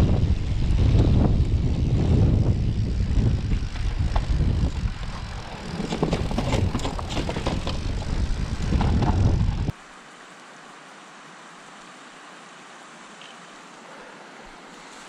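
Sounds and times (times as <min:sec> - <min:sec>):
bike rattling over stones: 0:00.0 - 0:09.7
wind rumble on microphone: 0:00.0 - 0:09.7.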